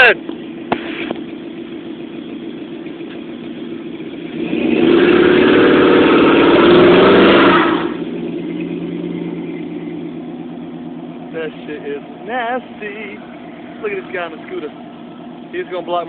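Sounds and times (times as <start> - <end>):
car engine idling and revving: 0.0 - 16.0
tyres squealing: 5.2 - 16.0.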